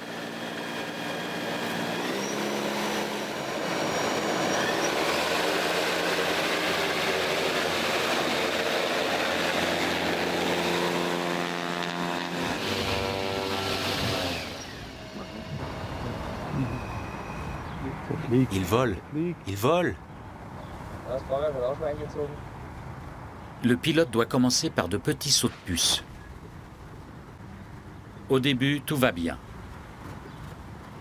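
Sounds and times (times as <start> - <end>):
electric aircraft motor whine: 0.0 - 17.8
propeller rushing noise: 0.0 - 19.7.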